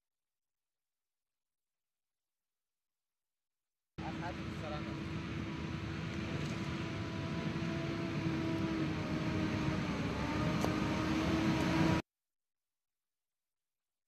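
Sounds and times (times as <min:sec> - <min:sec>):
machine running with whine: 0:04.0 - 0:12.0.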